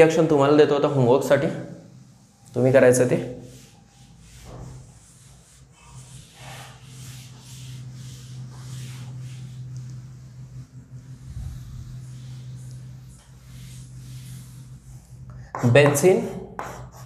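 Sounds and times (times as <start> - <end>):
steady low hum: 0.0 - 17.0
eraser rubbing on chalkboard: 2.0 - 17.0.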